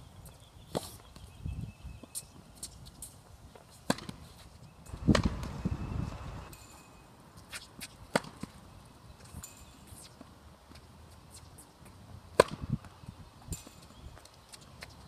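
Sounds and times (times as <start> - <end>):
racket hitting tennis ball: 3.7 - 5.6, 7.5 - 8.6, 11.8 - 12.9.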